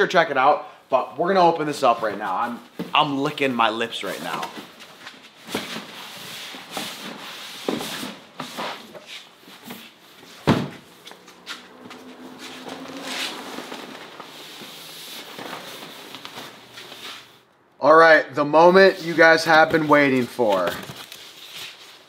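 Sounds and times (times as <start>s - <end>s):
box rustling and scraping: 11.2s - 17.3s.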